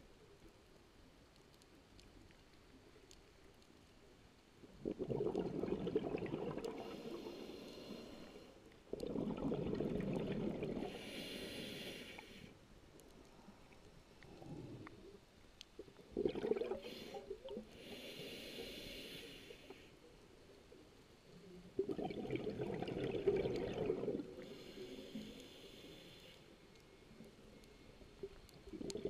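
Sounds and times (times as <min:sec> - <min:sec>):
diver exhaling bubbles: 0:04.8 - 0:07.3, 0:08.9 - 0:11.0, 0:16.1 - 0:17.2, 0:21.8 - 0:24.4.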